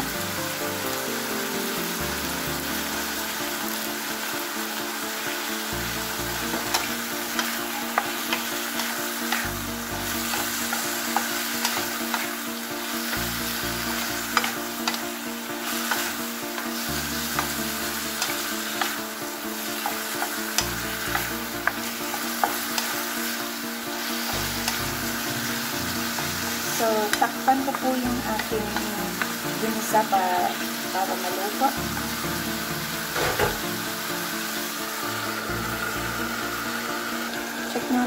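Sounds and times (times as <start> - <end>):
vegetables sizzling in oil: 0.0 - 38.0
spatula knocking and scraping pan: 6.4 - 12.4, 13.9 - 15.0, 33.1 - 33.8.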